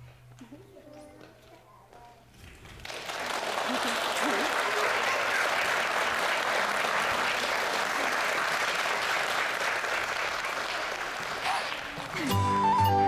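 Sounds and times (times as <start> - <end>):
audience applauding: 2.4 - 13.0.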